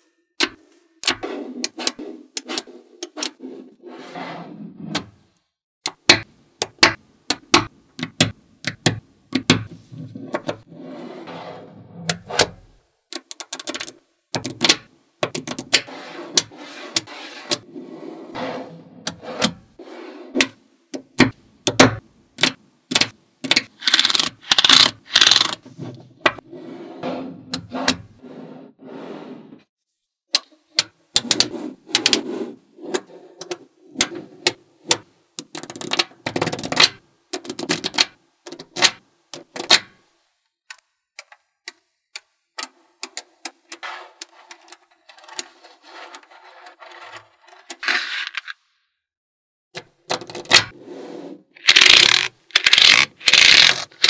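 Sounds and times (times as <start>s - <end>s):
magnet balls clicking together: 22.4s - 25.6s, 51.6s - 54.0s.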